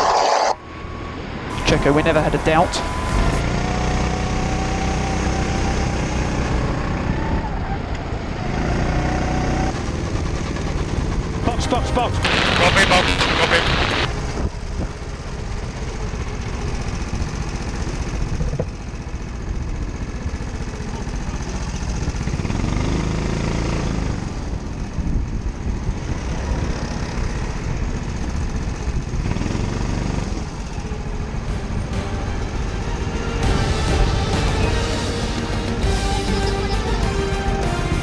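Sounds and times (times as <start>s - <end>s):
go-kart engine running: 0.7s - 38.0s.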